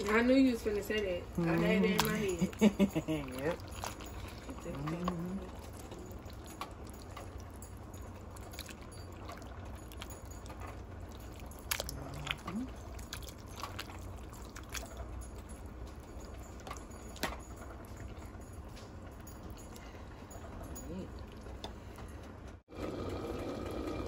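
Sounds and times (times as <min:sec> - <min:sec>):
steady low hum: 0:00.0 - 0:24.0
spoon stirring thick sauce: 0:01.4 - 0:17.4.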